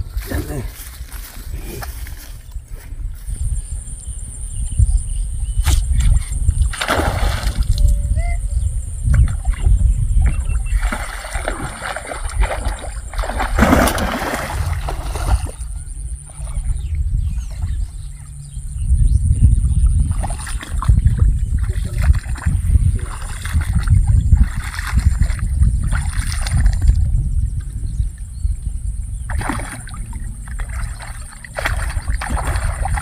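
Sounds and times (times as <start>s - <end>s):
low rumble: 0.0s - 33.0s
fish splashing in water: 6.7s - 7.8s, 10.3s - 16.7s, 29.3s - 33.0s.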